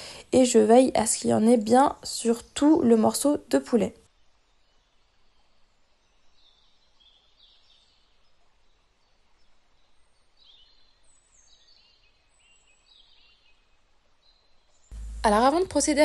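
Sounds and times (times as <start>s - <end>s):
faint bird chirps: 4.2s - 16.0s.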